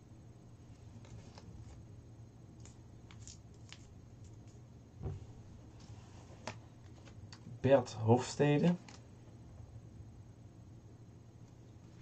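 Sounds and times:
paper crinkling and clicks: 0:02.6 - 0:04.6
soft low thump: 0:05.0 - 0:05.3.

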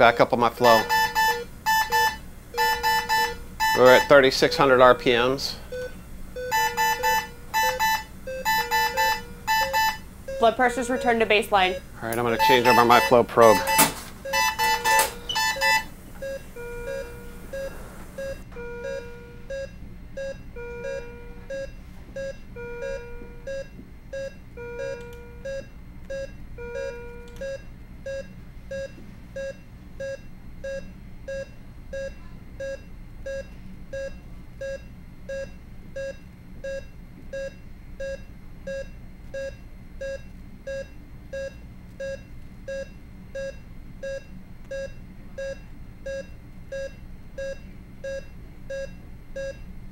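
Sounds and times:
low alarm tone: 0:00.0 - 0:34.1
medical monitor beeping: 0:00.0 - 0:49.7.

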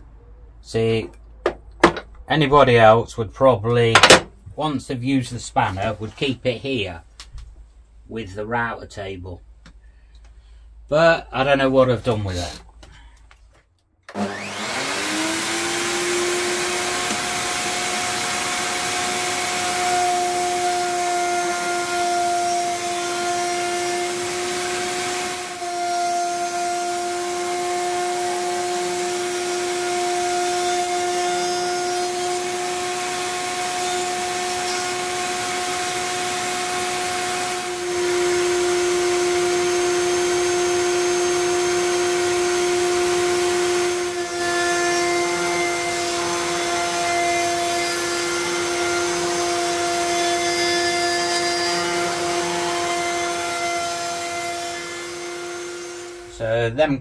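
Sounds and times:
dust extraction: 0:14.1 - 0:31.3
router high whine: 0:14.1 - 0:56.4.

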